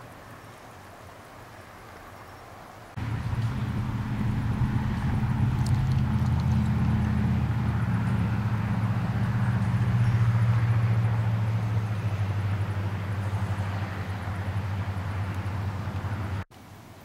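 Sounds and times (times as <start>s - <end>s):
low engine drone: 3.0s - 16.5s.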